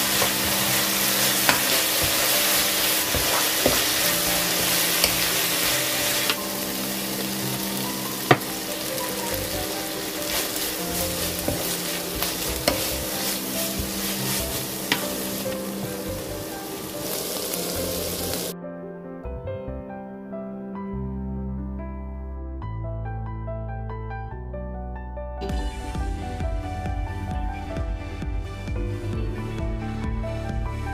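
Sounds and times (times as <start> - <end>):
food sizzling in a frying pan: 0.0 - 18.5.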